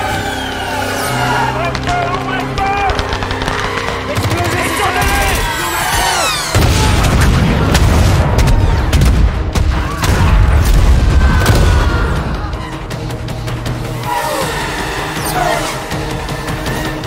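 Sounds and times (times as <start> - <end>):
explosion with low rumble: 6.6 - 12.2.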